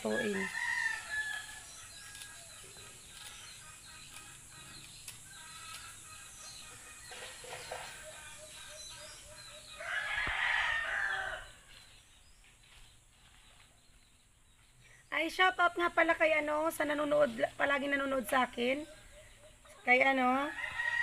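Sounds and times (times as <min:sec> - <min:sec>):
rooster crowing: 0:00.0 - 0:02.6, 0:07.8 - 0:11.7, 0:20.5 - 0:21.0.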